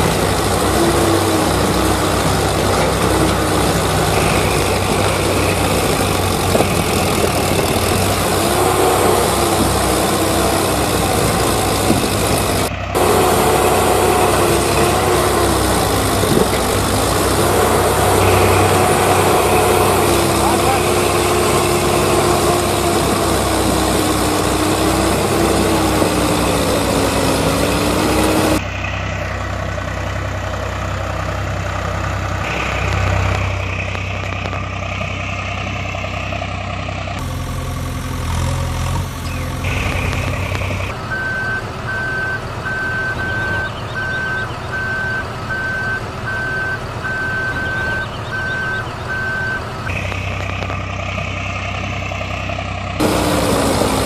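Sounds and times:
engine idling: 0.0s - 54.0s
engine with wavering whine: 0.0s - 54.0s
reversing alarm beeping: 39.7s - 50.7s.

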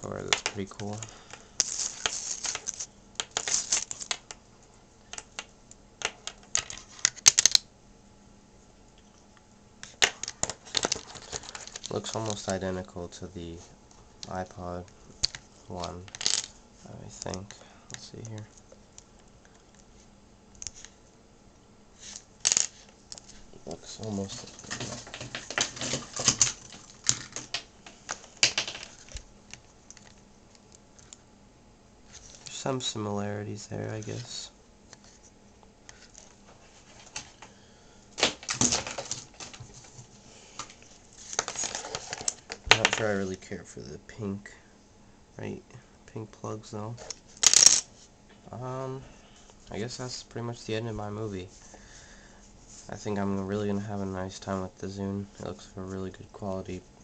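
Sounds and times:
cable rustling and clicking: 0.2s - 4.4s, 9.8s - 12.7s, 13.9s - 21.0s, 22.0s - 31.2s, 38.2s - 43.1s.

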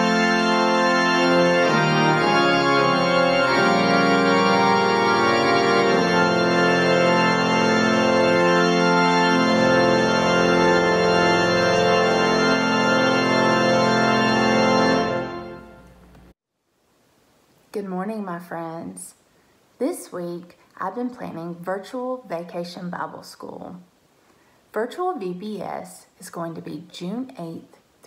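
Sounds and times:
organ playing sustained chords: 0.0s - 16.1s.

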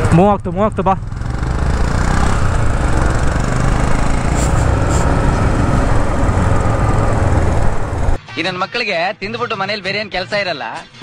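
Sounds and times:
motorcycle engines running: 0.0s - 8.2s.

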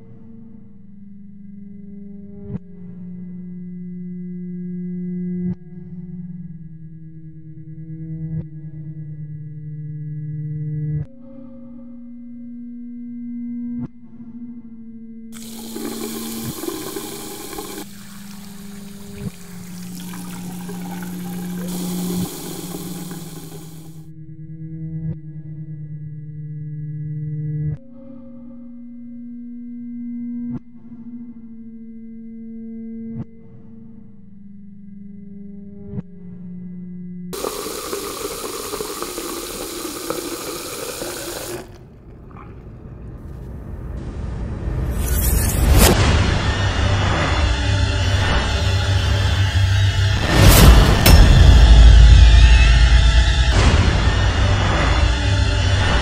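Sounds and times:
water running from sink faucet: 15.4s - 23.9s, 37.4s - 41.8s.

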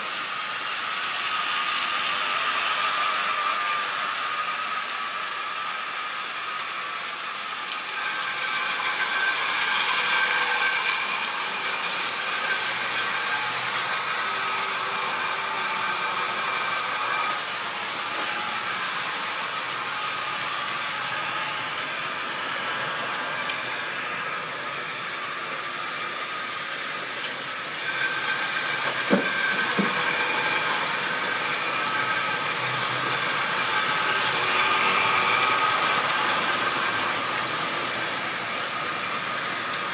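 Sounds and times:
model train motor whine: 0.0s - 39.9s.

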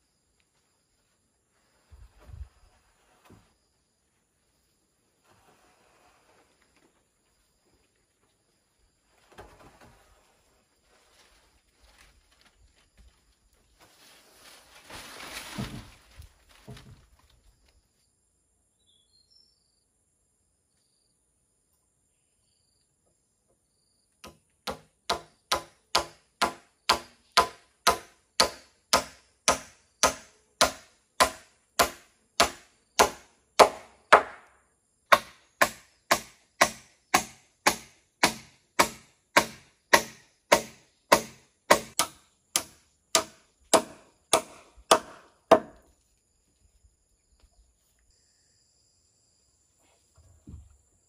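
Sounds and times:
blade chopping wooden pole: 24.2s - 34.5s, 35.1s - 45.8s.

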